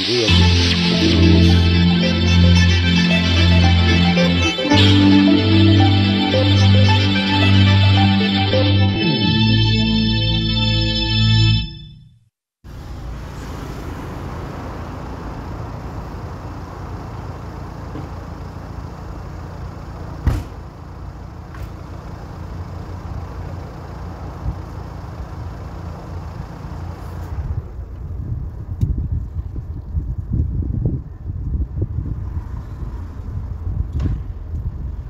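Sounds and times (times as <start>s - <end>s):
traffic noise from passing cars: 12.6s - 35.0s
sharp knock: 20.2s - 20.6s.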